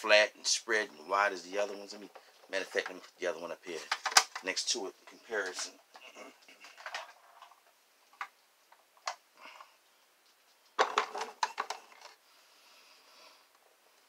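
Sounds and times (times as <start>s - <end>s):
plastic toy clattering: 3.7s - 4.5s, 5.4s - 8.3s, 10.8s - 12.2s.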